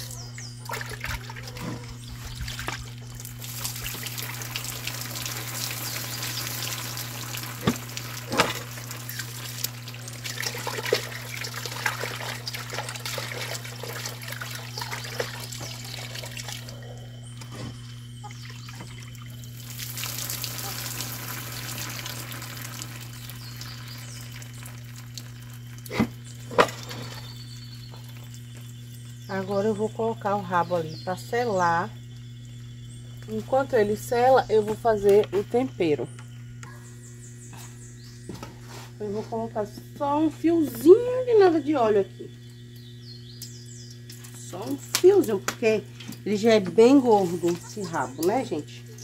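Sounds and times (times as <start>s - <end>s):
tap water splashing into metal bowl: 3.5s - 13.5s.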